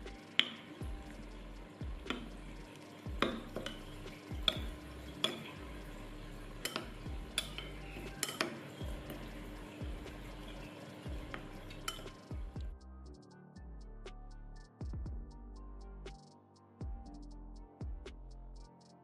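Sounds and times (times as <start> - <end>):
metal spoon clinking against bowl: 3.2 - 5.6, 6.6 - 8.9, 11.2 - 12.3.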